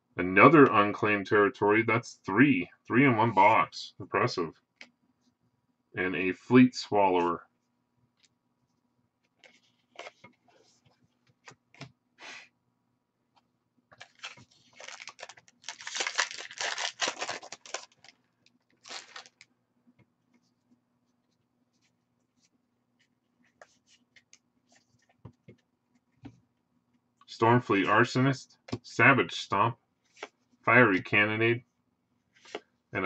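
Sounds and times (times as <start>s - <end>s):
foil wrapper tearing and crinkling: 14.0s - 18.1s, 18.8s - 19.4s.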